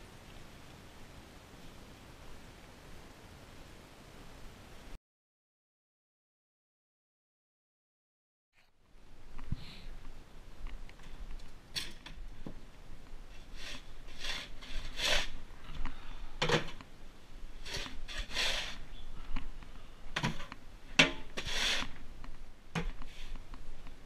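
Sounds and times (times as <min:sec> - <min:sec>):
manure fork scraping stall floor: 0:13.3 - 0:15.4, 0:17.6 - 0:18.9, 0:21.2 - 0:22.0.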